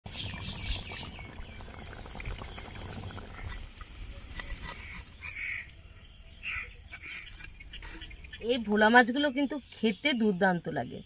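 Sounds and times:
curry bubbling in a wok: 0.1s - 4.9s
high bird calls: 4.8s - 8.9s.

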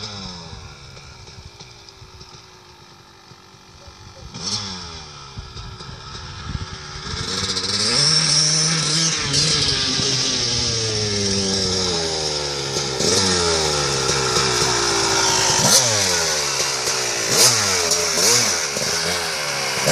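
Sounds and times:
motorcycle engine revving: 0.0s - 19.9s
motorcycle throttle blips: 0.0s - 19.9s.

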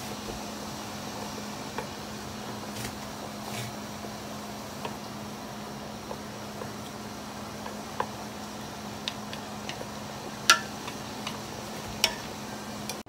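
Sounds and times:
boiling water: 0.0s - 13.0s
chopsticks ticking against pot: 6.0s - 13.0s
chopsticks clacking: 9.0s - 13.0s.

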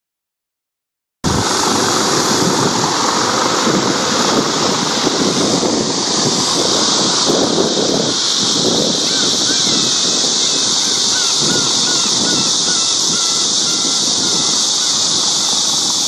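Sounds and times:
outdoor ambient hiss and rumble: 1.3s - 16.0s.

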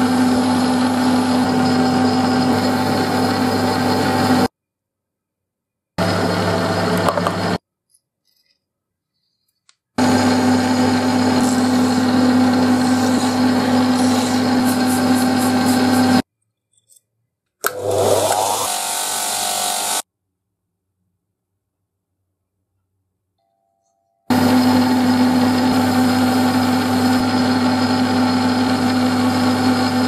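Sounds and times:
buffing wheel motor spinning: 0.0s - 4.5s, 6.0s - 7.6s, 10.0s - 16.2s, 17.6s - 20.0s, 24.3s - 30.0s
metal lathe humming: 0.0s - 4.5s, 6.0s - 7.6s, 10.0s - 16.2s, 24.3s - 30.0s
file rasping on steel: 10.8s - 16.2s.

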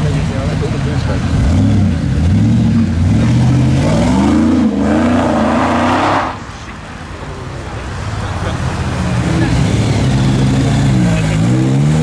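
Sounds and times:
pickup engine revving: 0.8s - 6.5s.

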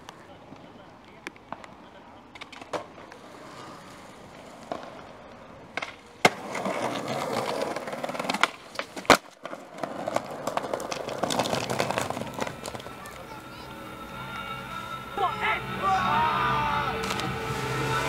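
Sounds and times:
skateboard clacking on ground: 0.0s - 13.8s
skateboard wheels rolling on pavement: 0.0s - 18.0s.

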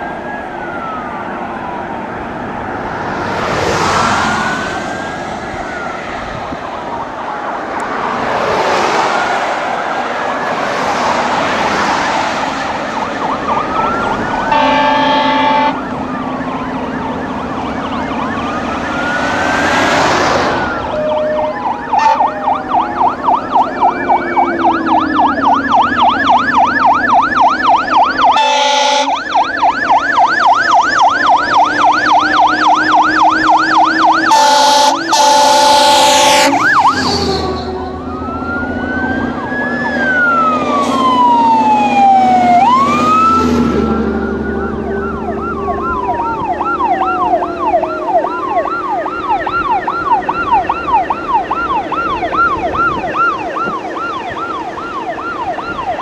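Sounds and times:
fire truck siren: 0.0s - 56.0s
truck engines running: 0.0s - 56.0s
air horn blasts: 14.5s - 15.8s, 21.3s - 22.4s, 28.3s - 29.2s, 34.2s - 37.9s.

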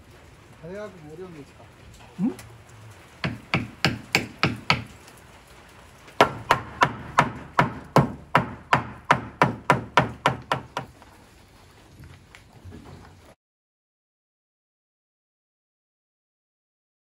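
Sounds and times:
hammer striking wood: 3.2s - 4.9s, 6.2s - 10.9s.

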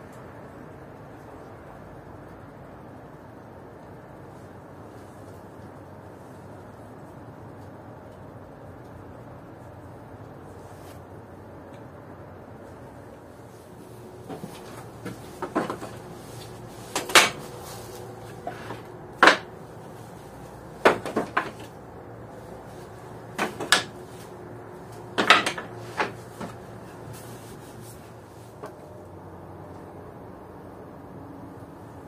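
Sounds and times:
hard objects knocking: 14.3s - 19.6s, 20.8s - 21.8s, 23.3s - 24.2s, 25.0s - 26.6s.

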